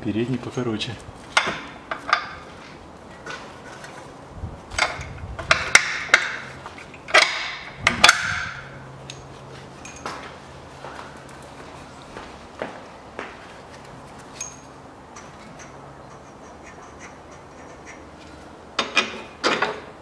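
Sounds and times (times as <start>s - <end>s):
metal tools clinking: 9.0s - 10.2s, 14.3s - 19.6s.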